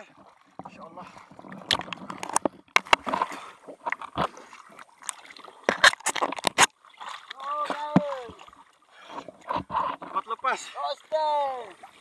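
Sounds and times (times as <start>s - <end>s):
water splashing against boat: 0.0s - 12.0s
knocks against hull: 9.4s - 10.2s.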